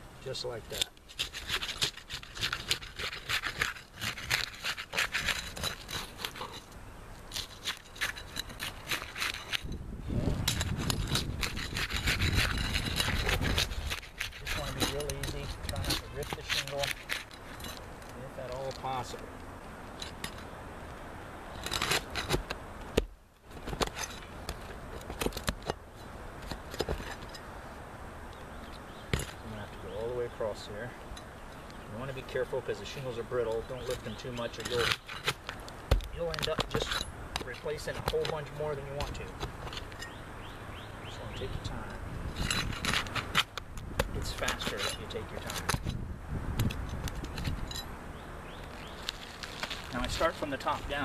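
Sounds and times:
steel bar scraping shingles: 0:00.6 - 0:19.2, 0:21.5 - 0:27.5, 0:32.0 - 0:40.2, 0:41.4 - 0:46.0, 0:48.7 - 0:51.0.

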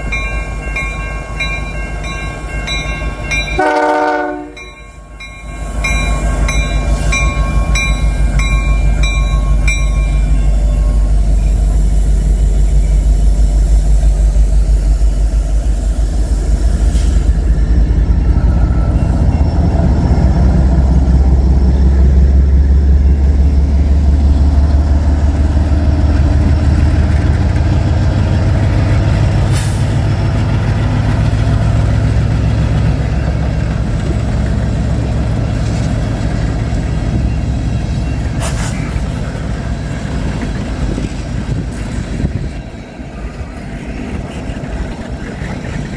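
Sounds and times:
locomotive bell ringing: 0:00.0 - 0:13.5, 0:17.7 - 0:24.0, 0:30.2 - 0:45.9
diesel locomotives passing: 0:00.0 - 0:45.9.

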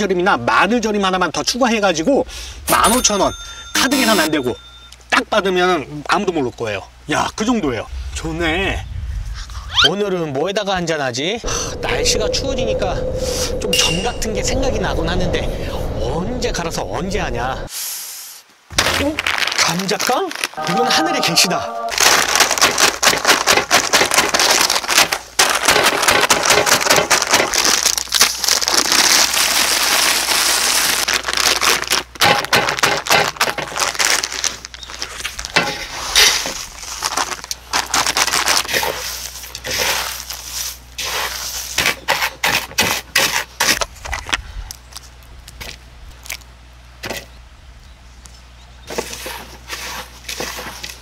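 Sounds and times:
small crackles: 0:18.9 - 0:20.6, 0:21.9 - 0:40.8, 0:43.7 - 0:46.5
snack crunching in plastic bag: 0:19.0 - 0:20.6, 0:21.9 - 0:40.5.

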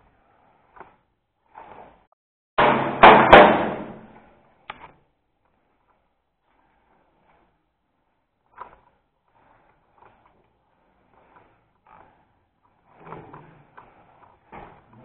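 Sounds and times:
clatter of knocks and bangs: 0:02.6 - 0:04.1.

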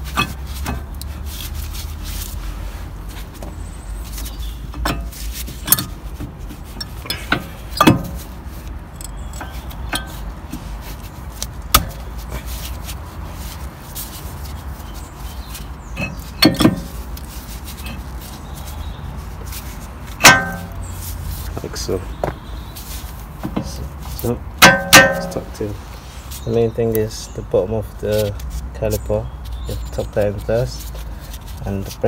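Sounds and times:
metal clinks and knocks: 0:06.7 - 0:10.6, 0:15.9 - 0:17.2, 0:20.2 - 0:21.0, 0:23.4 - 0:25.6.

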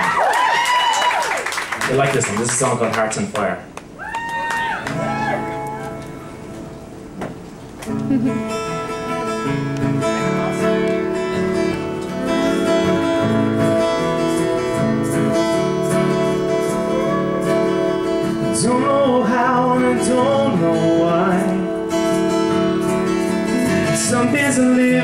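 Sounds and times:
acoustic guitars strumming and picking: 0:04.8 - 0:25.0
man singing: 0:16.7 - 0:22.0, 0:23.4 - 0:25.0.

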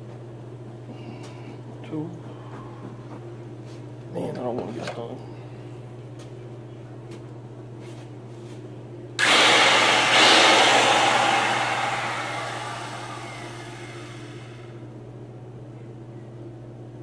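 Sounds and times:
electric wood router whining: 0:09.2 - 0:14.8.

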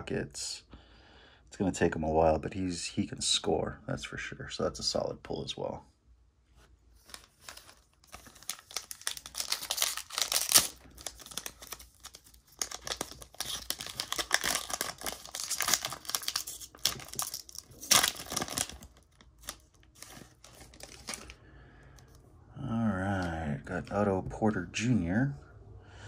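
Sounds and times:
foil wrapper tearing and crinkling: 0:07.1 - 0:21.4.

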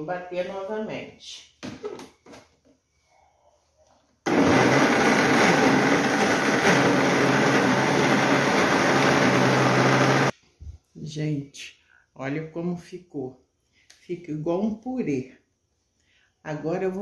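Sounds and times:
blender running: 0:04.3 - 0:10.3.

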